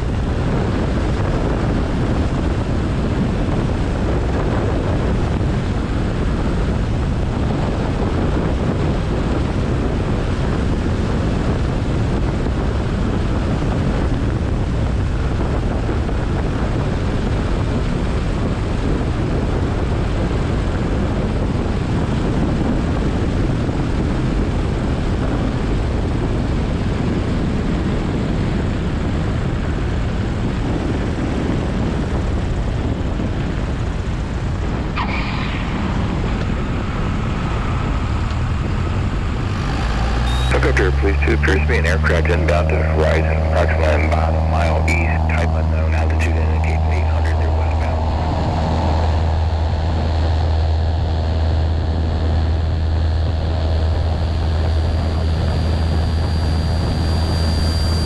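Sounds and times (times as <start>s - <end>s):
aircraft engine and propeller drone: 0.0s - 58.0s.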